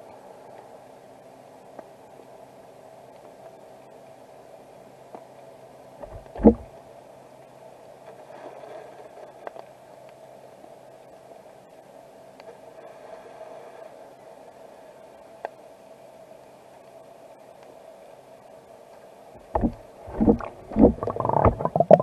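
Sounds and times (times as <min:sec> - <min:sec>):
dull thump: 0:06.0 - 0:06.7, 0:19.4 - 0:22.0
underwater hum: 0:06.0 - 0:06.8, 0:19.4 - 0:22.0
faint ticks: 0:15.4 - 0:15.6.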